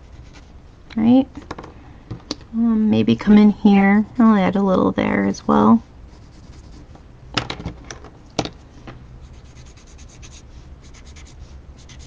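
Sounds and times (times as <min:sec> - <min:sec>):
pencil scratching on paper: 0:00.0 - 0:00.6, 0:06.1 - 0:06.9, 0:09.2 - 0:12.0.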